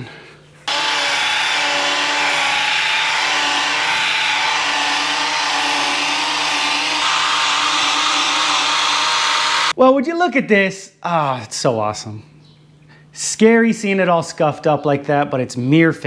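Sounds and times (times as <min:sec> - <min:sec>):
electric polisher whining: 0:00.7 - 0:09.8.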